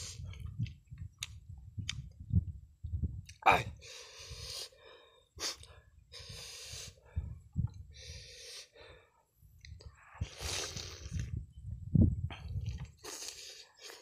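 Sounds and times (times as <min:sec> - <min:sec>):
man breathing heavily: 0:03.7 - 0:09.4.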